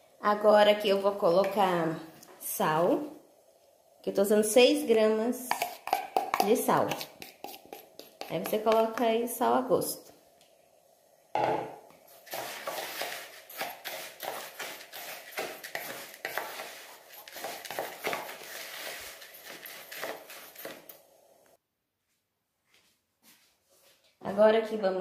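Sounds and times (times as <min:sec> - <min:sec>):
spoon scraping plastic bowl: 0:05.5 - 0:09.1, 0:12.2 - 0:21.0.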